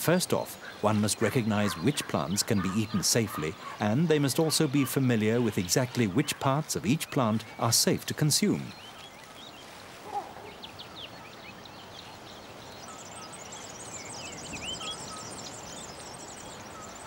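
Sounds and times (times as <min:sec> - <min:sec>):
steady outdoor hiss: 0:00.0 - 0:17.0
birds chirping and whistling: 0:10.4 - 0:17.0.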